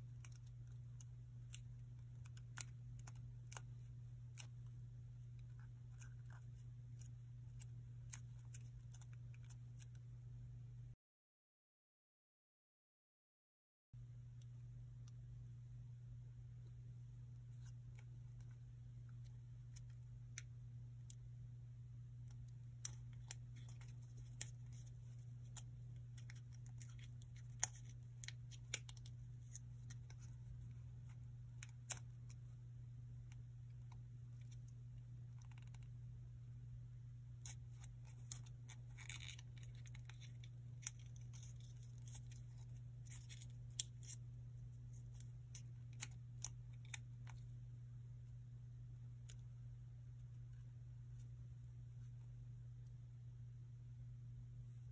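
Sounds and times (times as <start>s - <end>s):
low electrical hum: 0.0s - 11.0s, 14.0s - 54.9s
paper crinkling and creasing: 22.8s - 32.4s, 37.4s - 44.2s.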